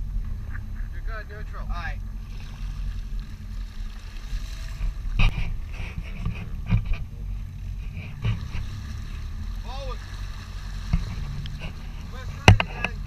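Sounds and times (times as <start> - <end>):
boat engine humming: 0.0 - 13.0
sharp knocks against boat: 4.7 - 7.2, 10.8 - 13.0.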